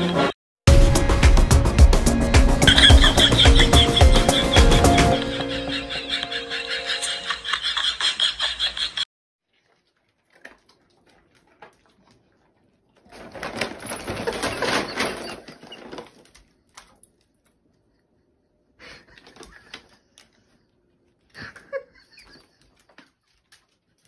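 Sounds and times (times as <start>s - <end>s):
paper bag rustling: 13.0s - 16.7s.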